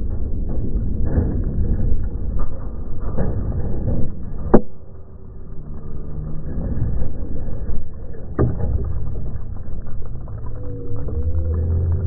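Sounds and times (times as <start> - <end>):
low explosion rumble: 0.0 - 12.0
sharp cracks: 8.0 - 12.0.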